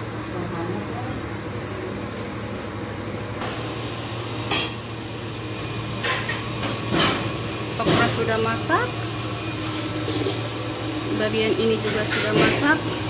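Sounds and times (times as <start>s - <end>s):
metal cookware clinking: 11.6s - 12.8s.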